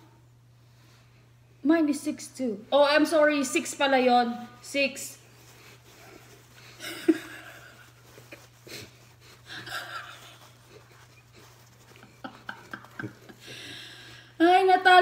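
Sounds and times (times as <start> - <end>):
woman laughing with mouth full: 6.8 - 8.9, 9.5 - 13.7.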